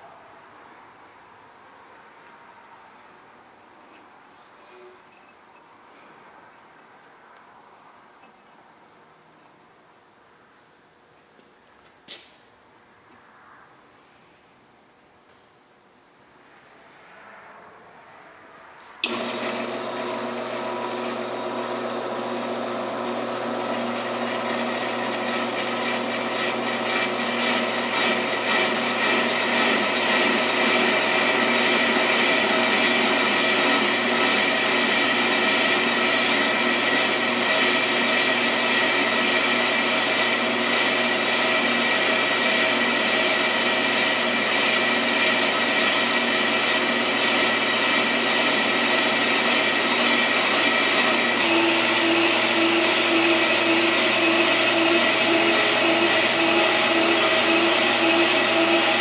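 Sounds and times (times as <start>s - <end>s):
brake lathe grinding with ringing whine: 19.0s - 59.0s.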